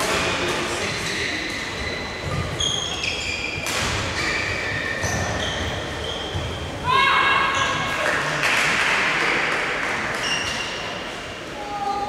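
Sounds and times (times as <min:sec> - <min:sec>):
low murmur in large hall: 0:00.0 - 0:12.0
shoes squeaking on court floor: 0:00.8 - 0:06.8, 0:10.2 - 0:11.0.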